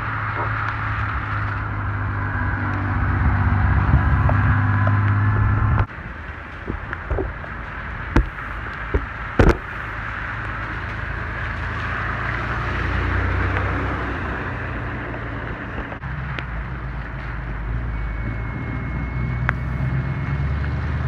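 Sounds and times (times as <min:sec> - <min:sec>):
car engine rumble: 0:00.0 - 0:21.0
sharp knocks: 0:08.2 - 0:09.7.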